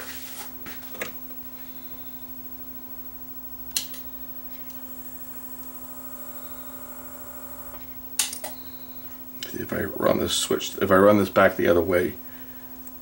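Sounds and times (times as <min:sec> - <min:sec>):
small motor whining: 0:05.6 - 0:07.8.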